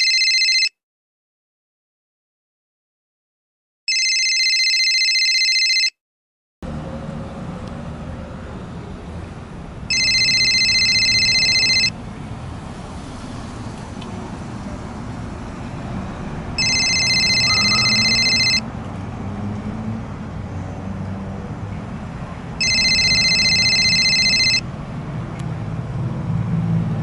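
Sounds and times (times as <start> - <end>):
telephone ringing: 0.0 - 0.7, 3.9 - 6.0, 9.9 - 12.0, 16.6 - 18.6, 22.6 - 24.6.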